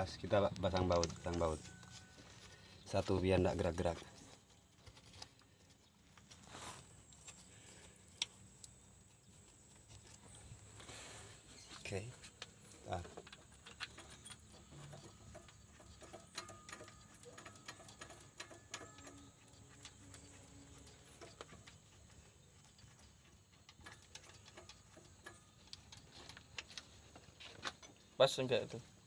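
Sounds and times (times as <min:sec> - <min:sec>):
hand tools clicking and tapping: 0:00.4 - 0:06.4, 0:12.2 - 0:28.1.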